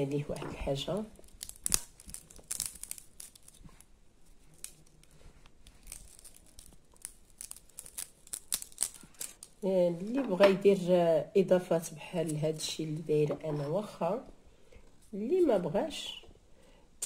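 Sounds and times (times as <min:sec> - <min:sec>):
dry paper crackling and rustling: 0:00.3 - 0:10.2.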